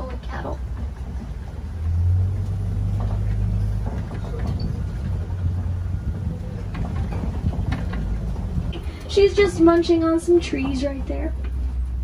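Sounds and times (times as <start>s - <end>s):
truck engine humming: 0.0s - 12.0s.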